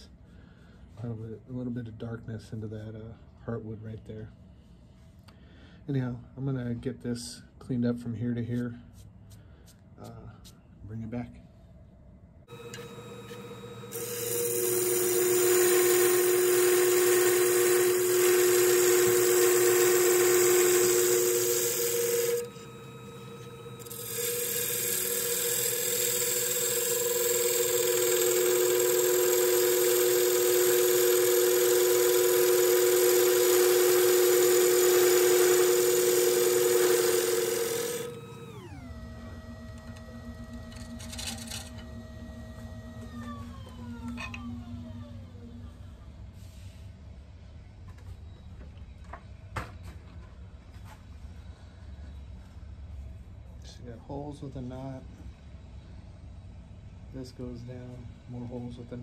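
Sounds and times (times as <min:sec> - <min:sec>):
wood lathe whining: 0:12.5 - 0:45.7
gouge cutting wood hissing: 0:13.0 - 0:38.6.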